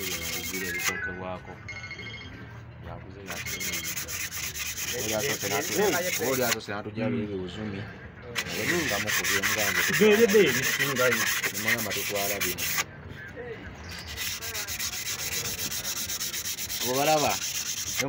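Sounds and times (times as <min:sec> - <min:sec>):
hand rubbing on metal: 0:00.0 - 0:01.0, 0:03.3 - 0:06.6, 0:08.4 - 0:12.9, 0:13.9 - 0:18.0.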